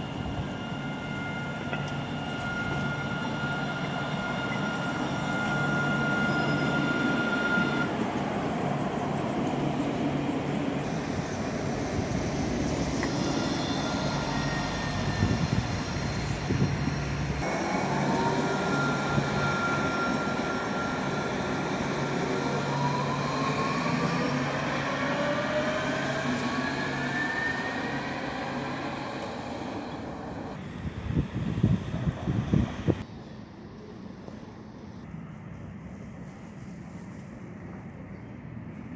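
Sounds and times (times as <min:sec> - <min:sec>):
traction motors whining: 0:00.0 - 0:30.7
tram running with low hum: 0:00.0 - 0:38.9.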